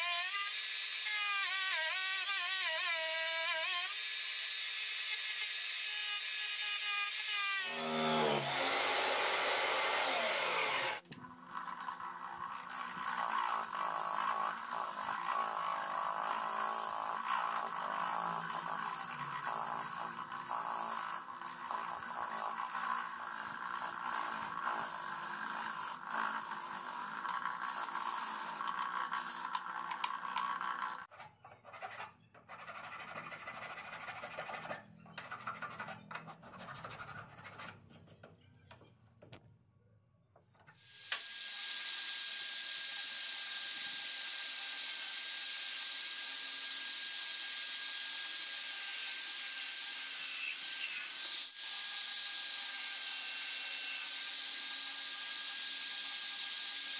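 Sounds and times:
drill press boring wood: 7.6s - 11.0s
hand file scraping wood: 7.6s - 11.0s, 12.9s - 38.3s
disc sander sanding wood: 7.7s - 11.0s.

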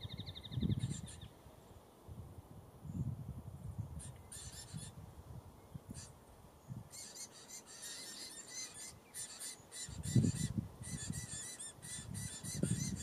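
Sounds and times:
nestlings squeaky begging calls: 4.0s - 4.9s, 6.9s - 13.0s.

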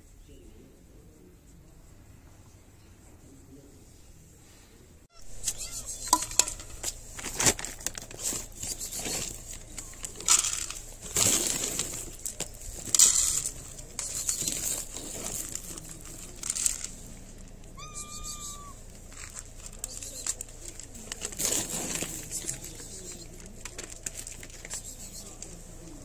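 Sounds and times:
plastic bag crinkling: 5.3s - 26.0s
kibble rattling onto ceramic plates: 5.5s - 17.9s.

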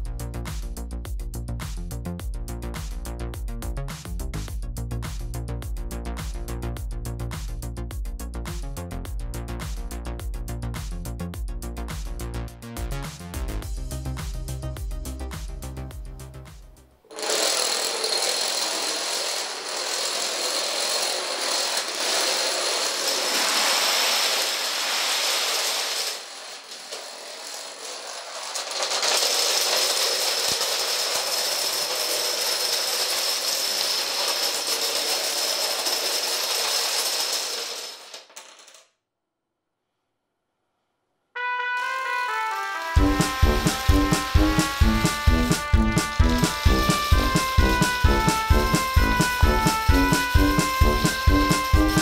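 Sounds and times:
music: 0.0s - 17.1s, 41.4s - 52.0s
dominoes toppling clatter: 17.1s - 38.9s, 41.8s - 52.0s.

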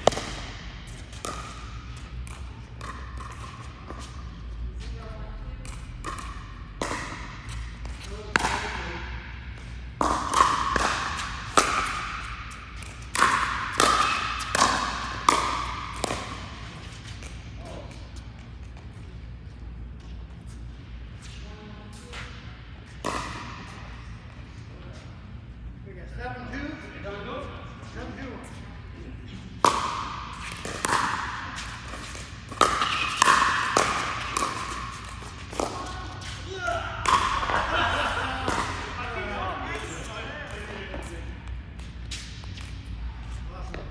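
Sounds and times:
ball bouncing on court: 0.0s - 4.9s, 5.5s - 19.1s, 22.1s - 24.2s, 29.5s - 42.9s.

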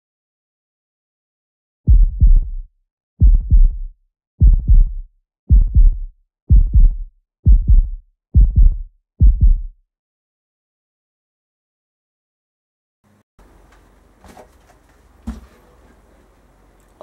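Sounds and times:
heartbeat thumps: 1.9s - 9.7s.

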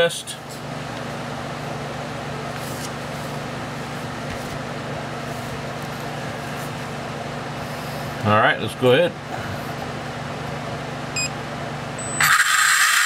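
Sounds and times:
electric motor whirring: 12.2s - 13.0s.

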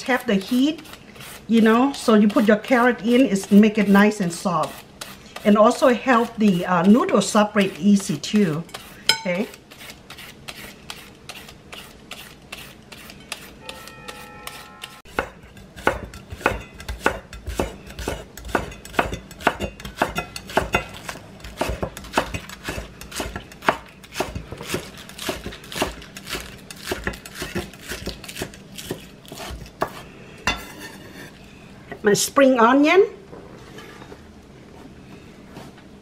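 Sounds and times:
peeler shredding carrot: 0.0s - 14.9s
knife chopping on wooden board: 12.1s - 30.6s.

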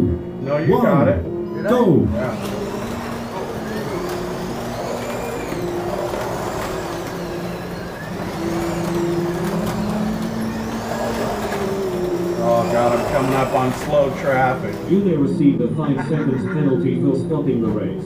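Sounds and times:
slot car motors whining: 0.0s - 18.0s.

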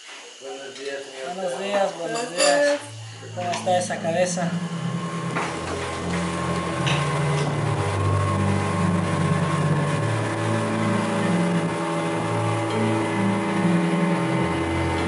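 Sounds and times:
outboard motor running: 2.9s - 15.0s
water rushing along hull: 4.5s - 15.0s.

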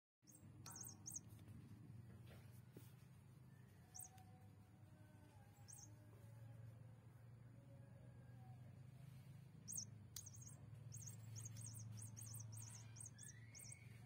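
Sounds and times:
very high-pitched chirps: 0.3s - 1.3s, 3.9s - 4.2s, 5.6s - 6.0s, 9.7s - 14.0s
low steady hum: 0.3s - 14.0s.

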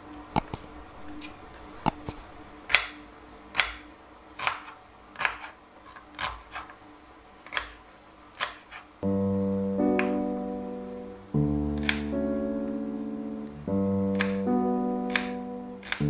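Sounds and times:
knife slicing onion on board: 4.4s - 6.8s, 7.4s - 8.9s
blade tapping wooden board: 14.1s - 14.4s, 15.1s - 16.0s.

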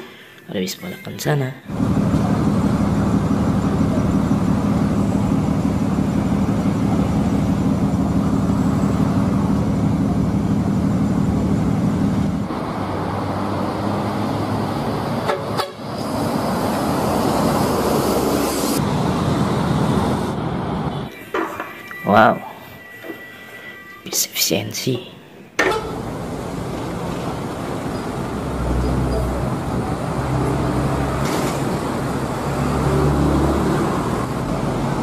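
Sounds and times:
traffic noise: 0.0s - 35.0s
bus horn blast: 15.2s - 16.0s, 25.6s - 26.2s.

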